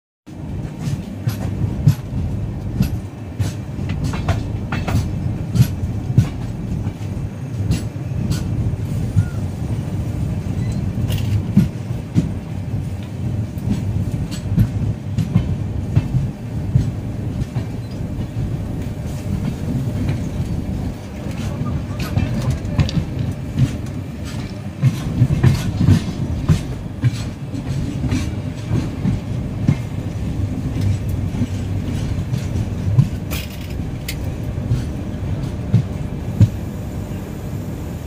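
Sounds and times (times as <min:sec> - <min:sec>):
train rumbling on track: 0:00.2 - 0:38.0
train wheels clacking: 0:00.4 - 0:09.5, 0:10.4 - 0:36.6.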